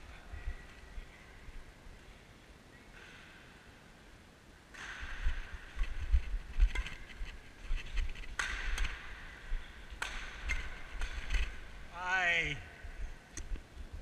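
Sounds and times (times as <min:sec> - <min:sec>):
racket hitting shuttlecock: 0:04.7 - 0:07.2, 0:08.3 - 0:11.8.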